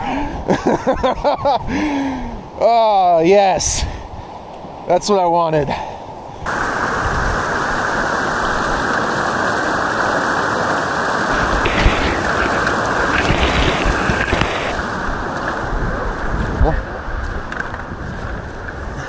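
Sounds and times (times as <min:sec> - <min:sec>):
rushing whitewater: 0:06.5 - 0:17.1.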